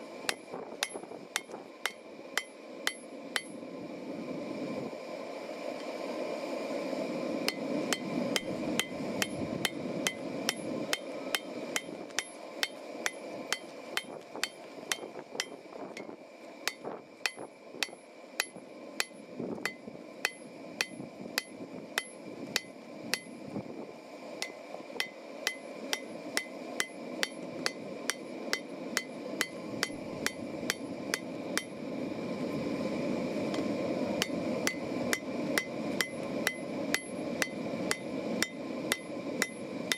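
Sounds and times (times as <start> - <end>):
hammer striking steel on anvil: 0.3 - 3.6, 7.5 - 23.4, 24.4 - 31.8, 34.2 - 39.9.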